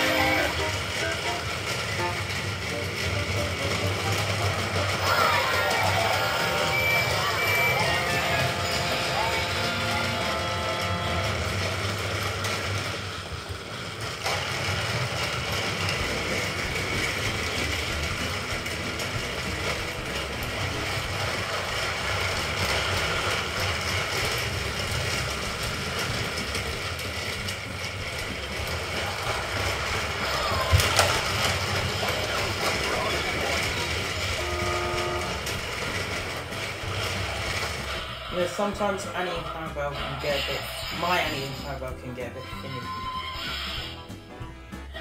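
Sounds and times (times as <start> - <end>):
toy wagons rattling over track: 0.0 - 45.0
small electric motors whirring: 14.2 - 38.4.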